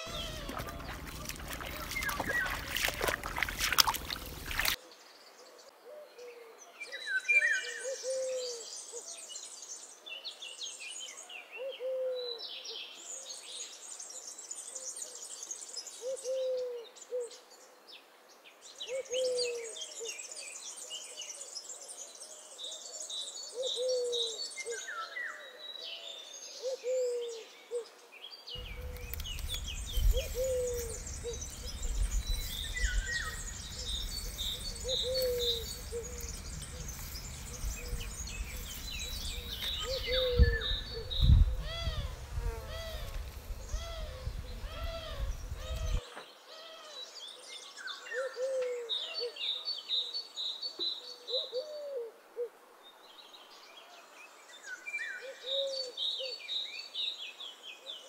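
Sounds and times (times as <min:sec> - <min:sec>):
low hooting bird call: 0:00.0 - 0:03.4, 0:28.6 - 0:47.0
high-pitched chirping birdsong: 0:00.0 - 0:04.8, 0:28.6 - 0:42.2
low rumble: 0:28.6 - 0:42.3.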